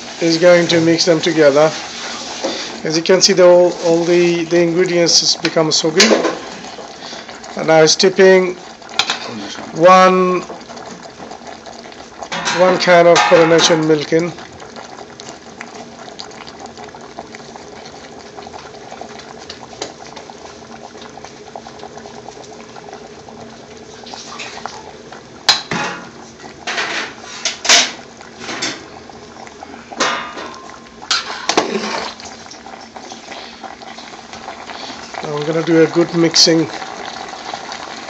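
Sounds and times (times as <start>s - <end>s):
pot simmering with bubbling hiss: 0.0s - 38.0s
utensils knocking against metal pot: 12.3s - 13.8s.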